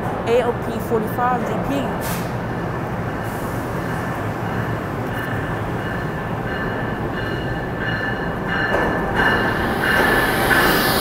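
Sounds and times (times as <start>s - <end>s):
train rumbling: 0.0s - 11.0s
wheels squealing on rails: 3.1s - 11.0s.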